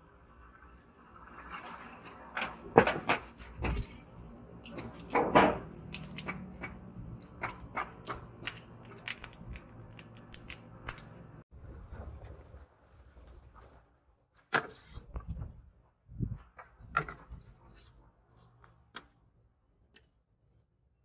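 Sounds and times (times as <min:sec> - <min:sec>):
charcoal clinking and scraping: 0:01.4 - 0:11.4
poker raking coals: 0:03.3 - 0:11.4.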